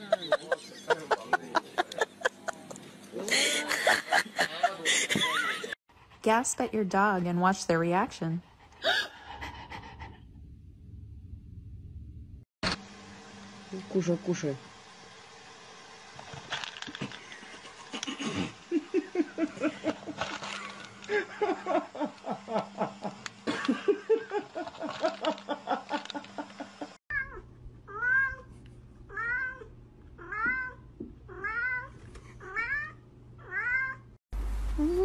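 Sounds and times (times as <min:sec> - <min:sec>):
cat eating with hummed sounds: 0:12.8 - 0:34.5.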